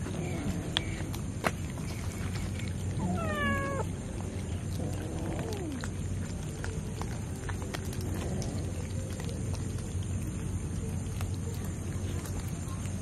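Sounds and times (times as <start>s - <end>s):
low steady hum: 0.0s - 13.0s
cat meowing: 3.0s - 3.9s.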